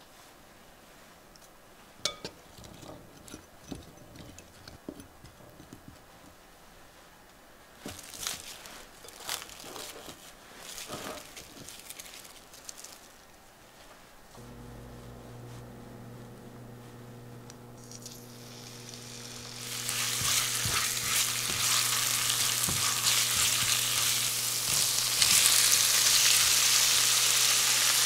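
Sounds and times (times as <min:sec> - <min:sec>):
fork clinking in glass bowl: 0:02.1 - 0:04.4
plastic wrap crinkling: 0:07.8 - 0:14.2, 0:17.8 - 0:28.0.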